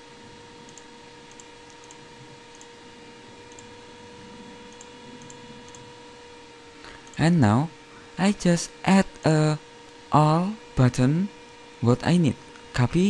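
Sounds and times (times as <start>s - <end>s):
microphone hiss and hum: 0.0s - 13.0s
computer mouse clicks: 0.6s - 2.7s, 3.5s - 3.8s, 4.7s - 5.9s, 6.9s - 7.2s.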